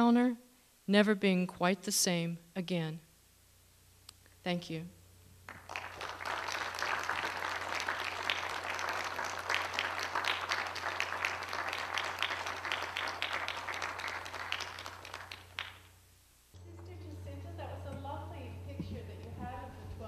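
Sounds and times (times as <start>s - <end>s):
audience applauding: 5.5s - 15.9s.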